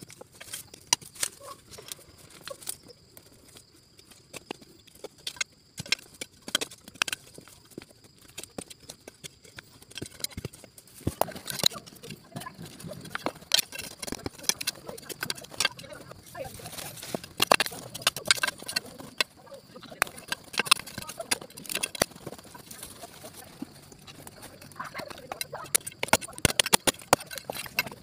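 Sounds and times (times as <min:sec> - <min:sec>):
digging in stony soil: 0:00.0 - 0:28.0.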